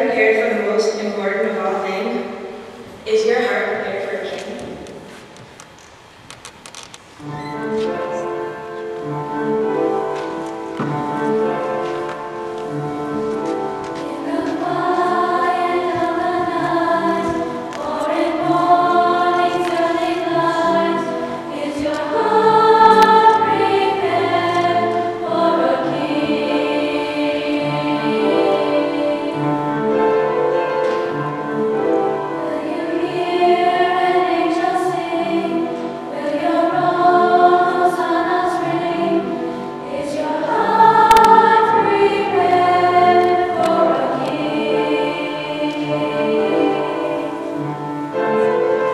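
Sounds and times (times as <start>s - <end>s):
women's choir singing: 7.2s - 48.9s.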